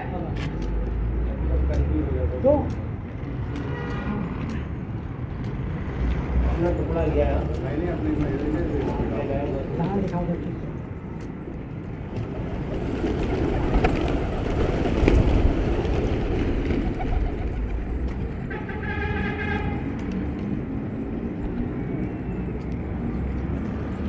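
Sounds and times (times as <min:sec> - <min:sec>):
pigeon wings flapping: 0:12.0 - 0:20.6.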